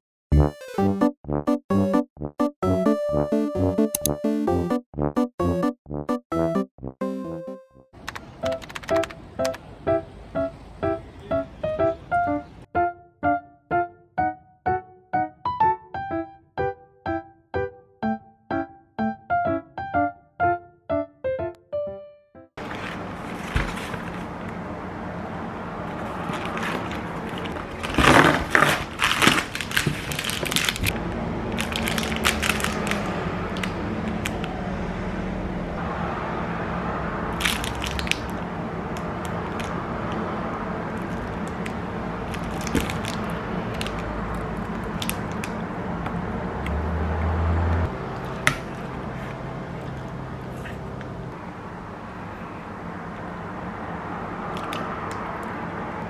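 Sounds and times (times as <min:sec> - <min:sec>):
packaging crinkling: 0:26.0 - 0:31.0, 0:31.6 - 0:34.4, 0:37.4 - 0:38.4, 0:40.9 - 0:45.6.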